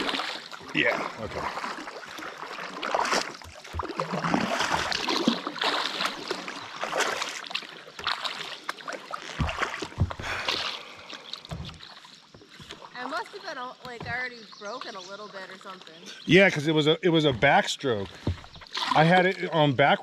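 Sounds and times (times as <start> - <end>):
paddle strokes splashing water: 0.0 - 20.0.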